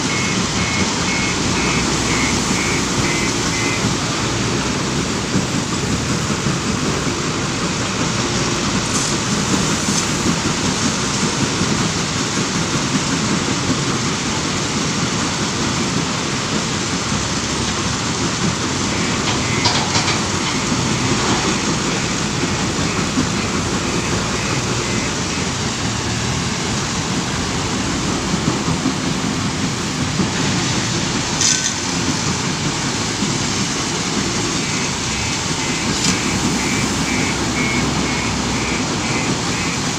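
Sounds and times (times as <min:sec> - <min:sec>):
rapid high beeping: 0:00.0 - 0:04.1, 0:18.6 - 0:26.2, 0:34.2 - 0:39.9
diesel engine: 0:00.0 - 0:39.9.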